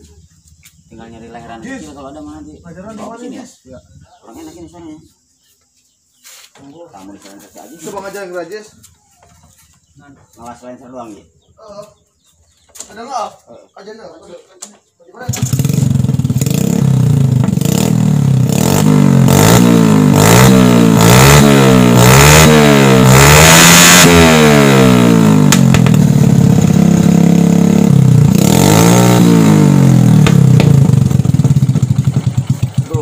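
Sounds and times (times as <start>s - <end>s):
motorcycle engine revving: 15.2s - 33.0s.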